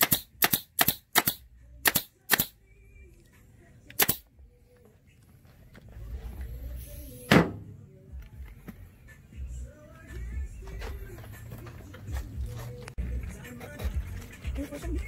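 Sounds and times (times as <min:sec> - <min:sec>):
staple gun firing: 0:00.0 - 0:02.5, 0:04.0 - 0:04.2.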